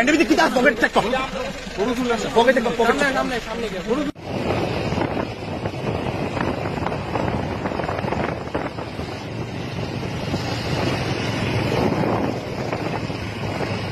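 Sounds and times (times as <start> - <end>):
motorcycle engine hum: 0.0 - 13.9
wind buffeting microphone: 4.2 - 13.9.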